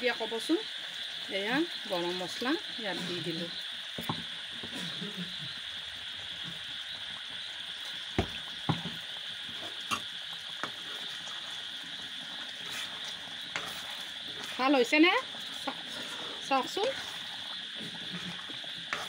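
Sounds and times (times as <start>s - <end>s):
curry sizzling with bubbles popping: 0.0s - 19.0s
ladle stirring: 10.6s - 19.0s.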